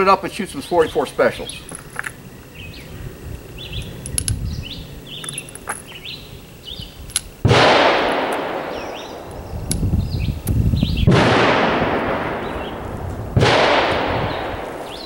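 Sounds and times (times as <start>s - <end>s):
birds chirping: 0.0s - 7.4s, 8.2s - 11.2s, 12.1s - 15.0s
cartridges clicking into revolver: 3.8s - 4.4s
loud gunshot: 7.4s - 9.3s, 11.0s - 15.0s.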